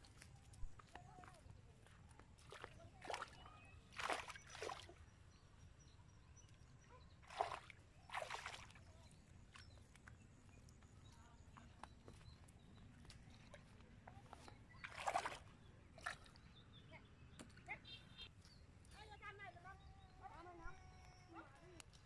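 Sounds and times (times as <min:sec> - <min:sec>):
splashes in shallow river water: 0:02.3 - 0:05.0, 0:07.2 - 0:09.6, 0:14.7 - 0:16.5.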